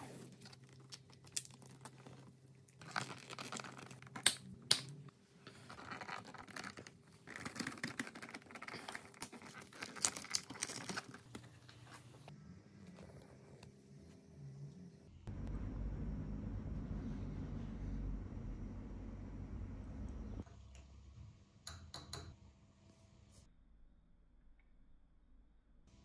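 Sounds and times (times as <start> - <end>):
tape crinkling and tearing: 2.8 - 4.5, 5.8 - 11.4.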